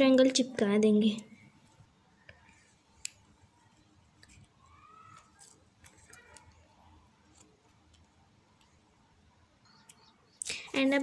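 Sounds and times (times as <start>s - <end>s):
faint clicks and rustles: 1.2s - 9.0s
faint chirps: 3.6s - 5.4s, 9.6s - 10.8s.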